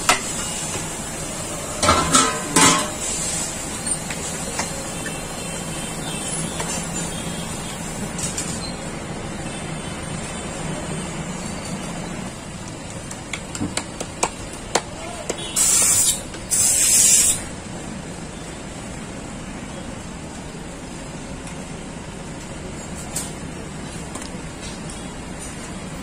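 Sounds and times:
street background hum: 0.0s - 26.0s
loud bursts of hissing: 2.6s - 5.8s, 15.5s - 17.5s.

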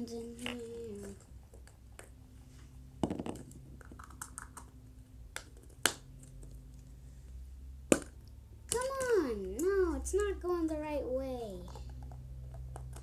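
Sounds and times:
plastic toys clicking and tapping: 8.7s - 10.4s, 11.6s - 13.0s.

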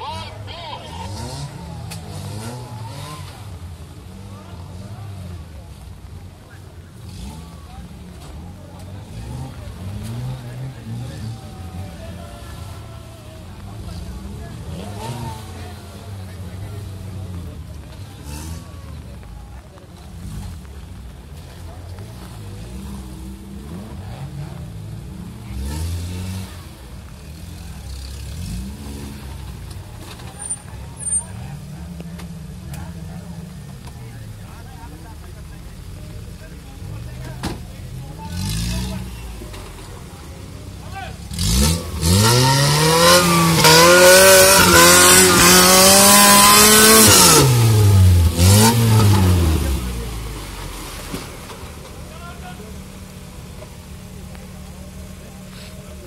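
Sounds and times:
engine revving hard: 0.9s - 5.4s, 7.0s - 8.4s, 9.0s - 17.4s, 22.0s - 32.0s, 36.8s - 51.7s.

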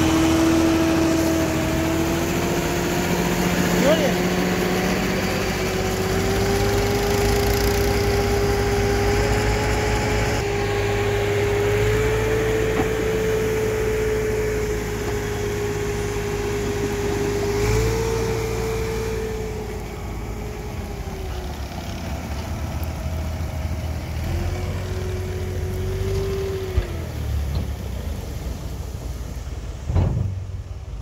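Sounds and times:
hydraulic whine: 0.0s - 23.6s
tractor diesel engine running: 0.0s - 31.0s.

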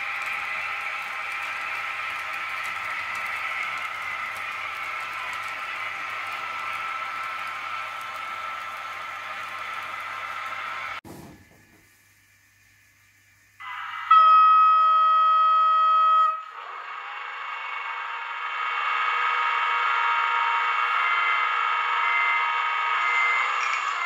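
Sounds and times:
noisy locomotive tone: 0.0s - 11.8s, 12.6s - 24.0s
model locomotive horn: 13.6s - 16.8s.

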